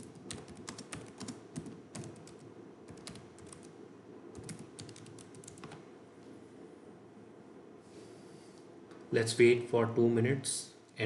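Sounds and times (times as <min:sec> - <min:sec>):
computer keyboard typing: 0:00.0 - 0:03.7, 0:04.3 - 0:05.8.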